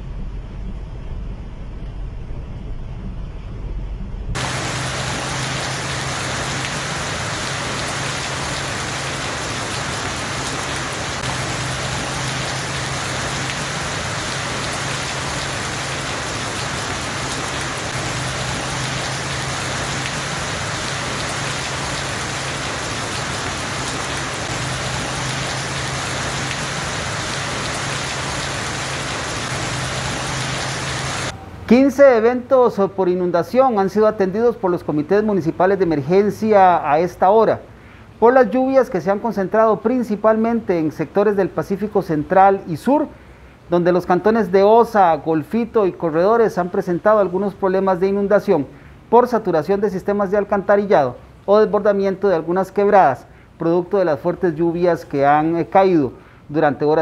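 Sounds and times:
faint low hum: 0.0s - 4.4s
heavy rain hissing: 4.4s - 31.4s.

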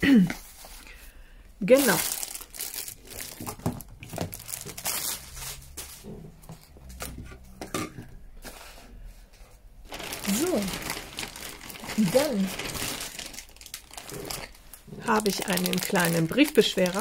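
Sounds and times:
plastic crinkling and rustling: 1.7s - 7.2s, 9.8s - 17.0s.

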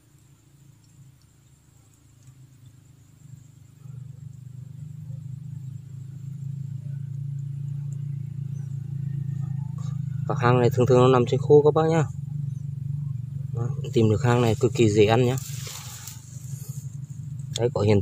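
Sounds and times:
faint ticks: 0.0s - 10.3s, 14.5s - 17.8s
low steady drone: 0.0s - 18.0s.

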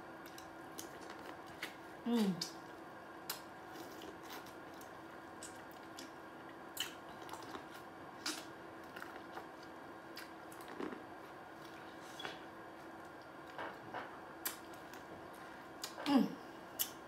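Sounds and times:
faint steady hum: 0.0s - 17.0s
teeth crunching corn kernels: 3.2s - 11.3s.

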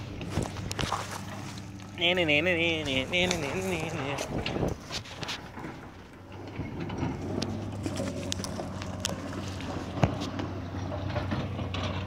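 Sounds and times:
low engine hum: 0.0s - 12.0s
footsteps on stones: 0.2s - 1.7s, 7.8s - 10.3s.

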